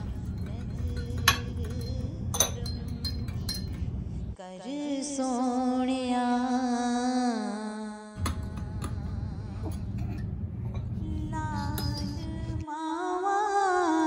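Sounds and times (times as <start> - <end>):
teaspoon clinking in teacup: 0.0 - 3.9, 11.5 - 12.3.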